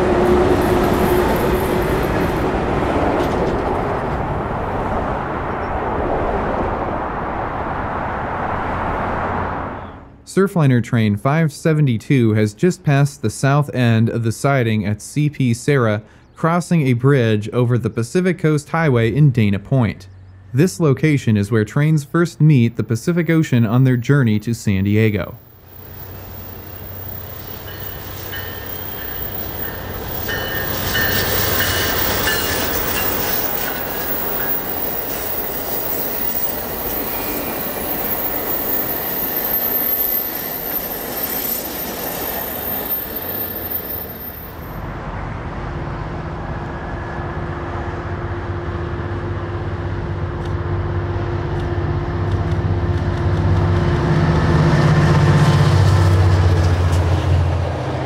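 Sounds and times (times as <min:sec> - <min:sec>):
diesel locomotive engine drone: 0:00.0 - 0:58.0
passenger train rolling by: 0:00.0 - 0:58.0
train wheel squeal: 0:25.7 - 0:44.9.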